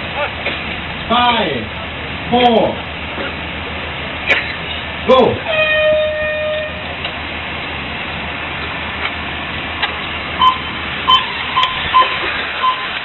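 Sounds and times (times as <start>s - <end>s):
long electronic tone: 10.4s - 12.9s
short electronic beeps: 10.4s - 13.0s.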